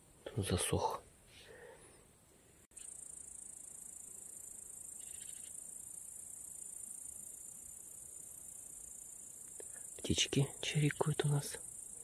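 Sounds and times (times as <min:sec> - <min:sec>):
crickets trilling: 0:02.7 - 0:12.0.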